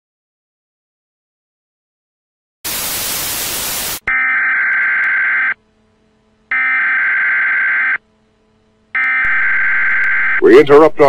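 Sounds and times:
static hiss: 2.7s - 4.1s.

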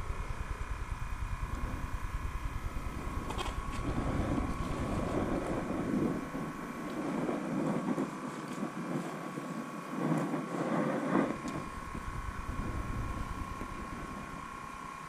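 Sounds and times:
traffic rumbling over bridge: 0.0s - 7.0s
faint steady hum: 0.0s - 15.0s.

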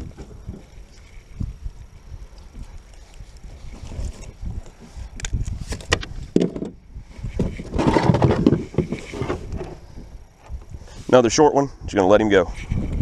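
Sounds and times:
rubbing and rustling: 5.6s - 10.0s.

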